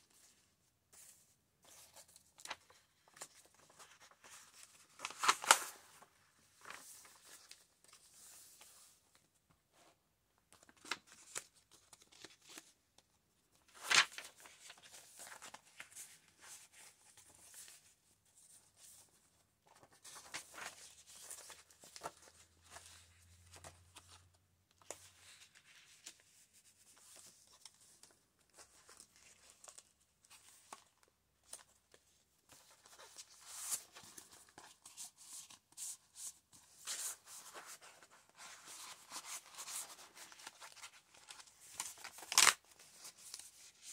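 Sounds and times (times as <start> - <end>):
paper pages rustling and flipping: 0.1 - 9.1, 10.5 - 12.8, 13.6 - 17.9, 18.5 - 43.9
sharp paper snap: 42.1 - 42.6.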